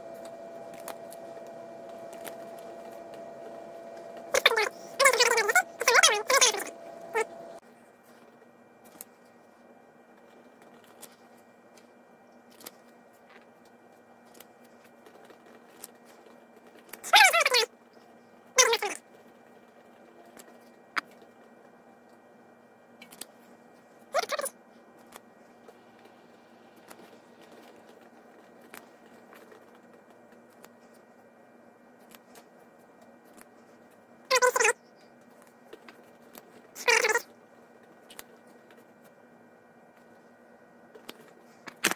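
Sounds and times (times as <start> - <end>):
faint steady hum: 0.0 - 41.9
trading cards rustling: 0.1 - 7.3.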